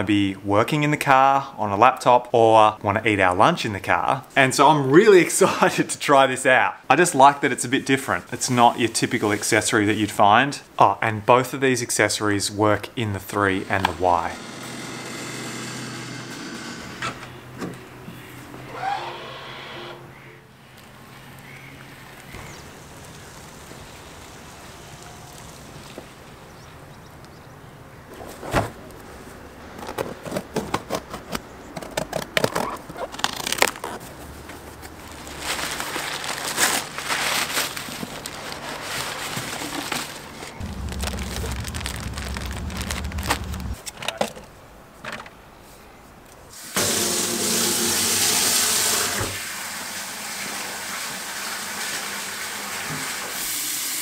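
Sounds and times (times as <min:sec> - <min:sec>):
crumpled paper rustling: 0:32.5 - 0:43.8
low rumble: 0:40.6 - 0:43.8.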